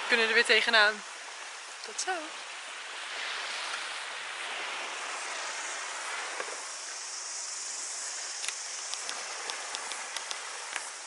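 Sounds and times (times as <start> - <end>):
surf: 0.0 - 11.0
wind: 0.0 - 11.0
sharp clicks: 8.4 - 10.9.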